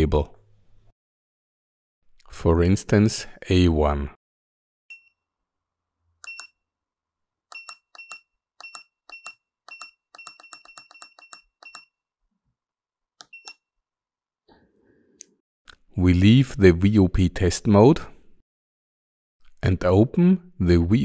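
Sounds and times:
high keypad beeps: 6.2s - 6.6s, 7.5s - 12.0s, 13.2s - 13.6s.

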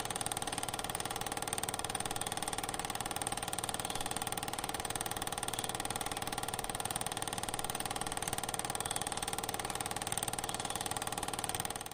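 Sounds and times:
film projector whirring and clattering: 0.0s - 11.9s.

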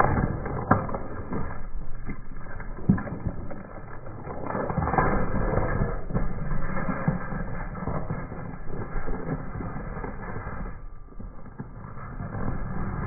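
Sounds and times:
watermelon crushed crackling: 0.0s - 13.0s.

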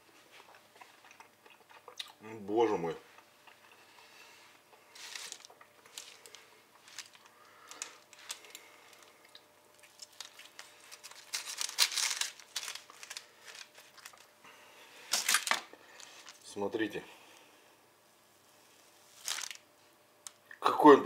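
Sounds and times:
blade scraping crinkling paper: 4.9s - 9.1s, 9.8s - 14.3s, 19.1s - 19.6s.

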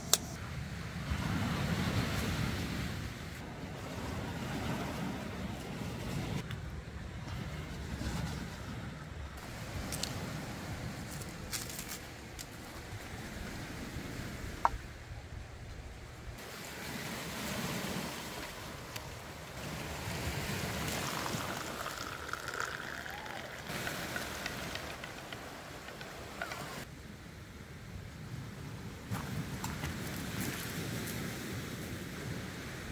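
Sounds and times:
sea waves washing on shore: 16.4s - 26.9s.

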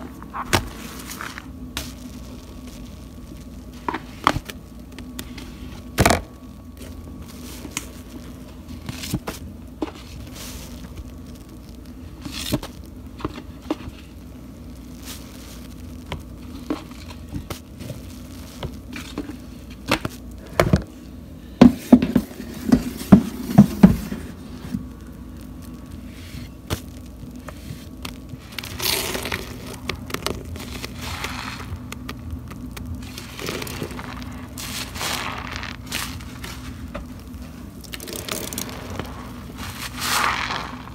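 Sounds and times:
soapy sponge squelching in foam: 30.6s - 31.8s, 33.1s - 36.8s, 37.9s - 40.9s.

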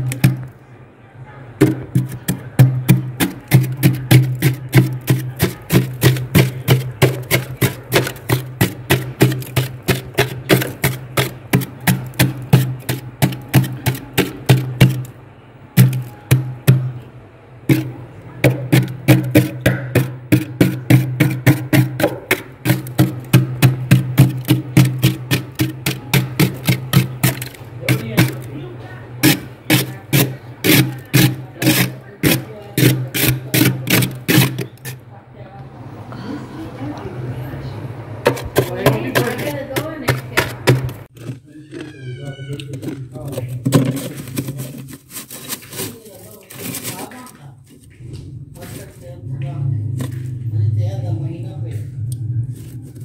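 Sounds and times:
knife scraping freezer frost: 1.6s - 15.1s, 17.7s - 28.6s, 29.2s - 35.0s, 38.3s - 47.9s.

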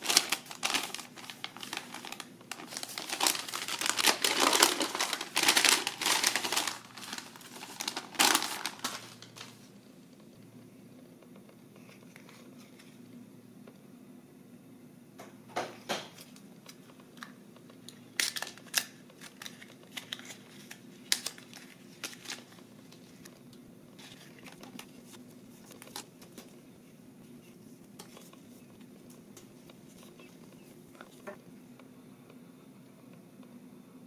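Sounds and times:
stickers clicking and crinkling: 0.0s - 9.6s, 16.2s - 23.4s
steady low hum: 0.0s - 34.0s.

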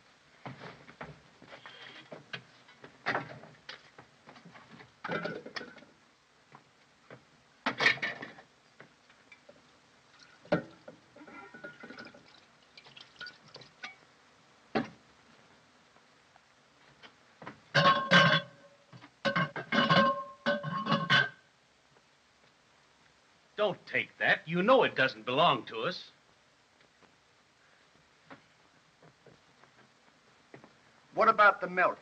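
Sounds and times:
faint soundtrack hum: 0.0s - 32.0s
kitchen utensils and tins clattering: 5.0s - 5.9s, 7.7s - 8.4s, 17.7s - 18.7s, 19.3s - 21.4s.

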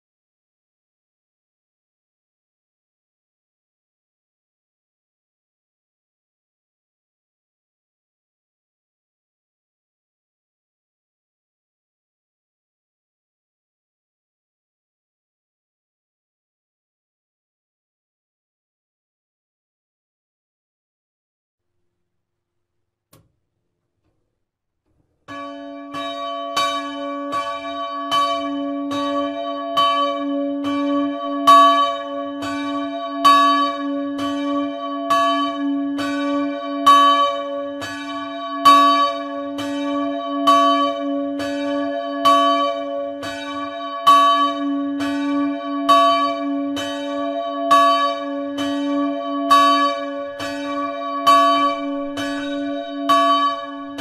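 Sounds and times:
church bell ringing: 25.3s - 54.0s.

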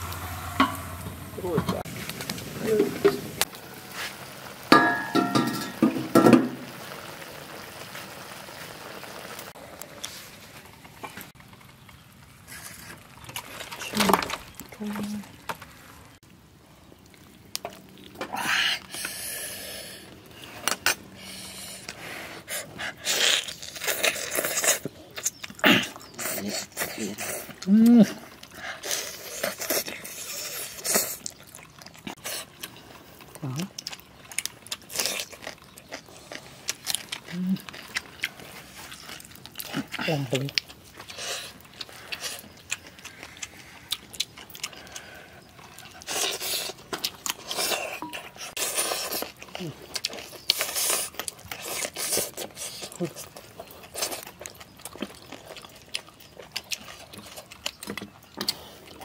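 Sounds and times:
man chewing and sucking meat: 16.8s - 59.0s
breathing through the nose: 18.4s - 23.2s.

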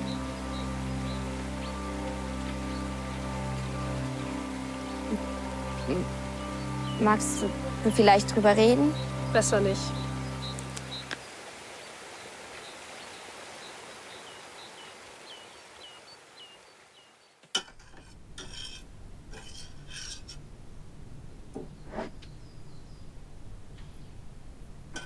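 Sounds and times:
spoon scraping in metal saucepan: 17.6s - 20.4s.

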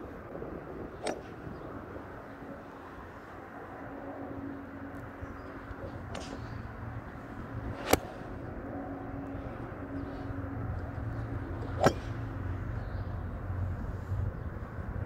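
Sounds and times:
low hum: 0.0s - 15.0s
golf irons striking balls: 0.9s - 1.7s, 5.6s - 13.2s.

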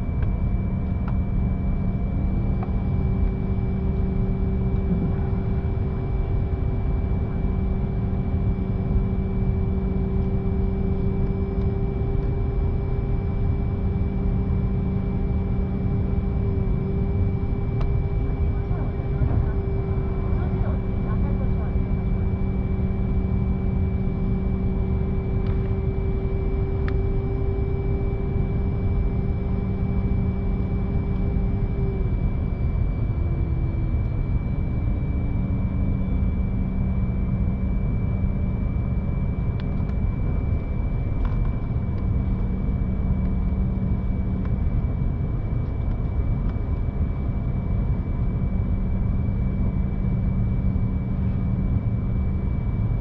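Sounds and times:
airliner cabin rumble: 0.0s - 53.0s
high whine: 1.4s - 53.0s
low hum sliding down in pitch: 4.3s - 6.0s.

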